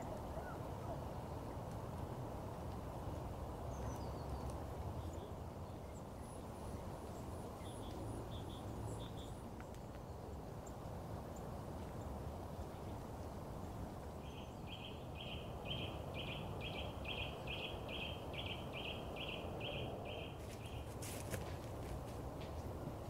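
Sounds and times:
songbird singing repeated notes: 3.6 - 10.8, 14.2 - 21.0.

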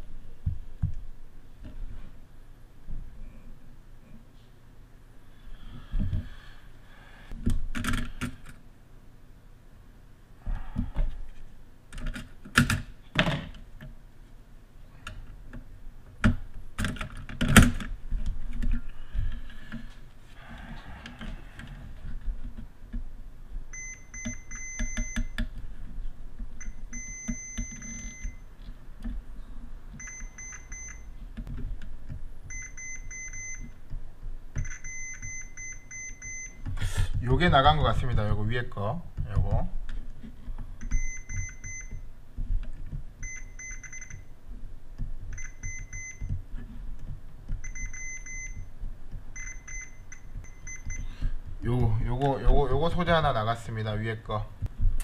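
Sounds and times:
multimeter continuity beep: 23.7 - 25.4, 26.6 - 28.5, 30.0 - 31.2, 32.5 - 33.8, 34.6 - 36.8, 40.8 - 42.0, 43.2 - 44.3, 45.3 - 46.4, 47.6 - 48.7, 49.3 - 51.2.

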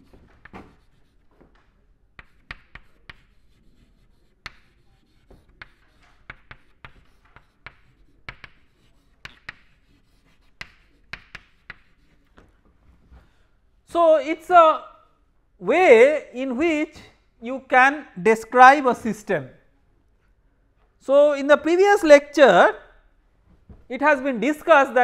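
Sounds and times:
chalk writing on chalkboard: 0.0 - 12.7.

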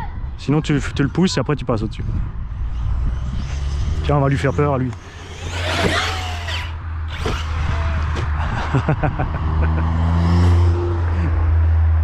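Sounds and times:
car driving past: 9.1 - 12.0.

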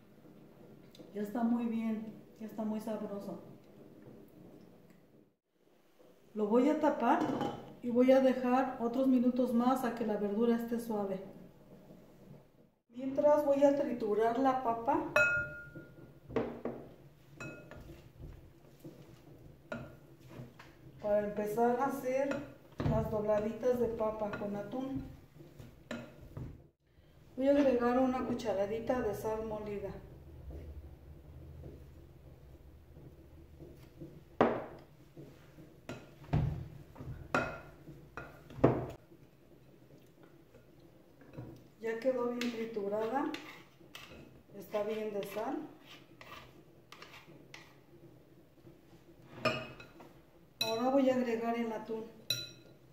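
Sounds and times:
potato masher mashing potatoes: 27.4 - 49.2.

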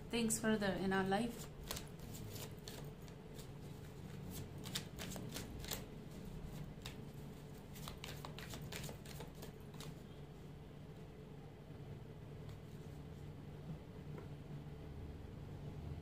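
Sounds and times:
cards shuffled by hand: 1.3 - 10.0.

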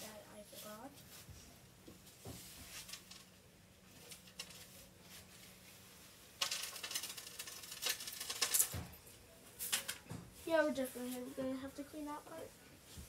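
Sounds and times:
bedding clicks and rustles: 1.8 - 11.3
rustling scrape: 2.1 - 3.3.

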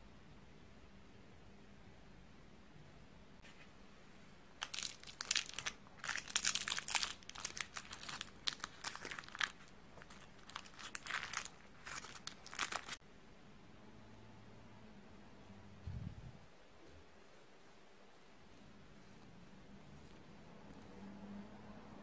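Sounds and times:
paper liner crinkling: 4.6 - 13.0.

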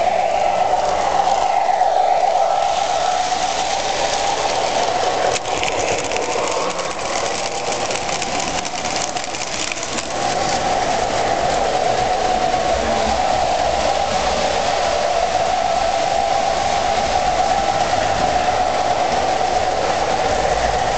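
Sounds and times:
train wheels rumbling: 0.0 - 20.9
model train motor hum: 2.7 - 16.1
rapid small clicks: 4.8 - 10.6.

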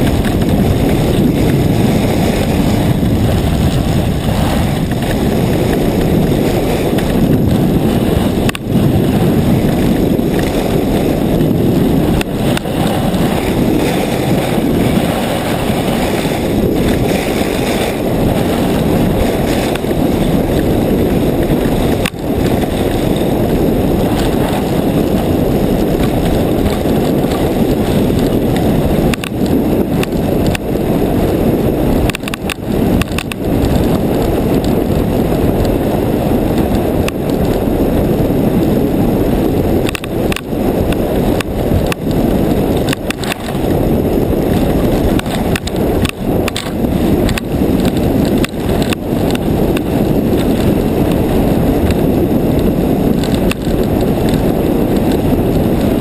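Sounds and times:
runners hissing and scraping on snow: 0.0 - 32.1, 43.4 - 56.0
wind on microphone: 0.0 - 56.0.

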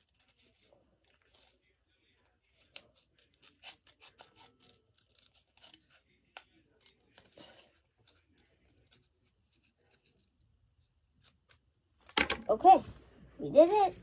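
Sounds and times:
scissors cutting paper: 0.0 - 10.4.

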